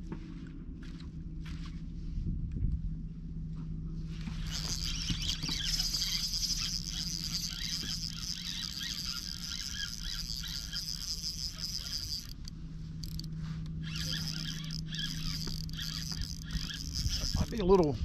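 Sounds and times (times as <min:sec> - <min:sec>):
fishing reel whirring: 0:04.3 - 0:18.0.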